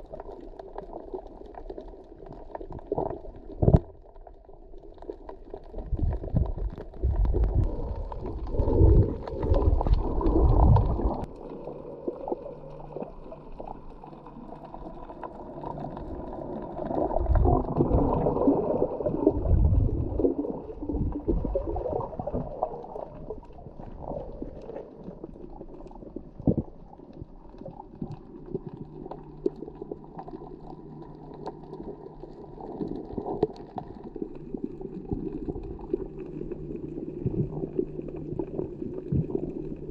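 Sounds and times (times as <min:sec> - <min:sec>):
water noise: 0:00.0 - 0:39.9
diver's exhaled breath bubbling: 0:05.7 - 0:13.8, 0:14.8 - 0:28.3.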